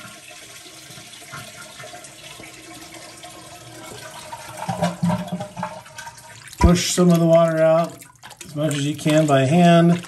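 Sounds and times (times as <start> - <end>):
toilet flushing: 0.0 - 10.0.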